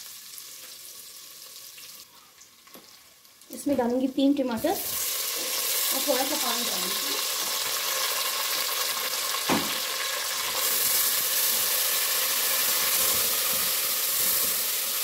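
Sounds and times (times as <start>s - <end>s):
food sizzling in hot oil: 0.0s - 15.0s
knock: 9.5s - 9.8s.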